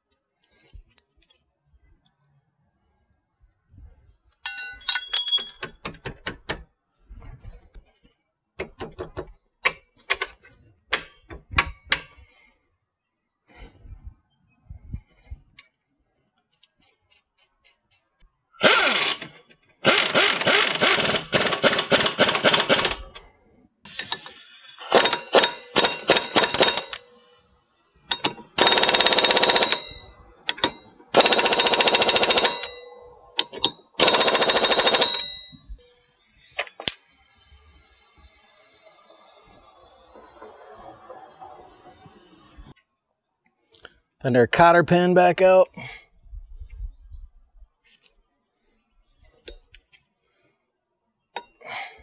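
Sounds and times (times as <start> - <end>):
pneumatic impact wrench hammering: 18.6 - 23.2, 23.9 - 42.7.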